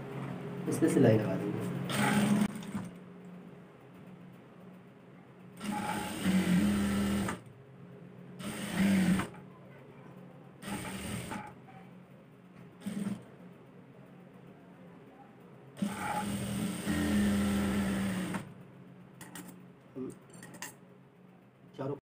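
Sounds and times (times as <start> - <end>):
low steady hum: 0.0 - 22.0
sewing machine stitching: 1.9 - 2.9, 5.6 - 7.4, 8.4 - 9.4, 10.6 - 11.5, 12.8 - 13.2, 15.8 - 18.5.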